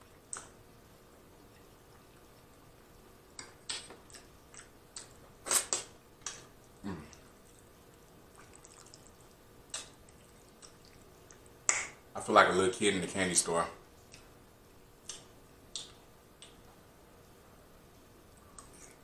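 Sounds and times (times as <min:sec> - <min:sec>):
wet lip smacks: 0:03.4 - 0:06.4
chewing clicks: 0:09.7 - 0:11.9.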